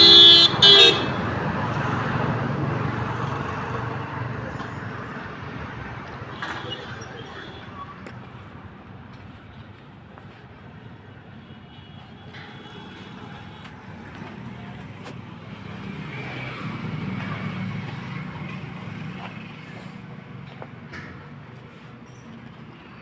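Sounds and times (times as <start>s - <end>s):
vehicle engine humming: 7.5s - 23.0s.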